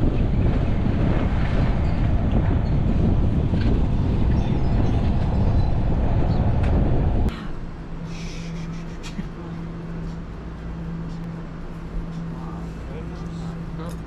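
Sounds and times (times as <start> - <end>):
wind rumbling over microphone: 0.0 - 7.3.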